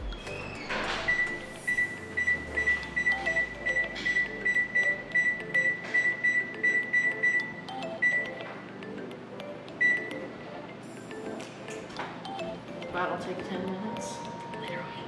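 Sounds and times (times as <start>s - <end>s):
oven control panel beeping: 0.3s - 8.4s, 9.8s - 10.2s.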